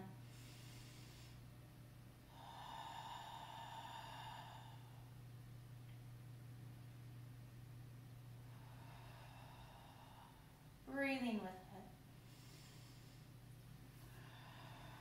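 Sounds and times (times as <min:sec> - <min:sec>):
faint low hum: 0:00.0 - 0:15.0
slow breath: 0:00.2 - 0:01.6, 0:02.3 - 0:05.3, 0:08.4 - 0:10.8, 0:12.1 - 0:15.0.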